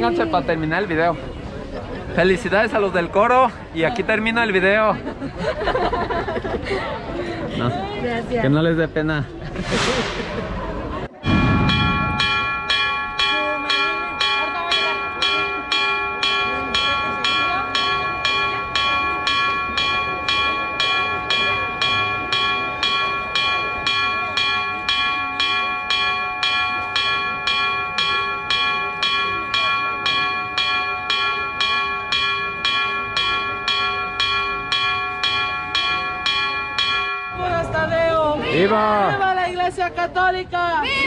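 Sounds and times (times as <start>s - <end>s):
church bell pealing: 11.2s - 38.0s.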